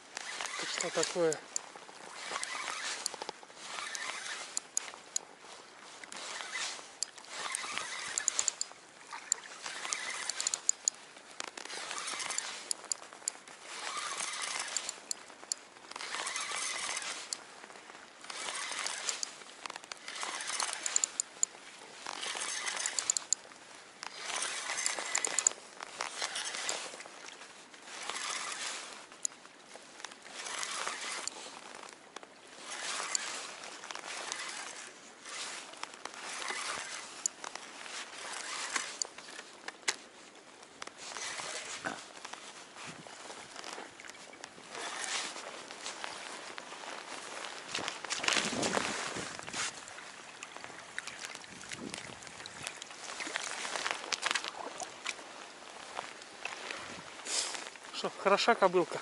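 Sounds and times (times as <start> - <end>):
spinning reel cranking: 0.2 - 1.4, 2.2 - 4.9, 6.2 - 10.9, 11.7 - 13.0, 13.7 - 15.2, 16.0 - 17.4, 18.3 - 19.3, 20.0 - 21.4, 22.1 - 23.4, 24.2 - 25.5, 28.0 - 28.7, 34.1 - 35.4, 38.2 - 39.1.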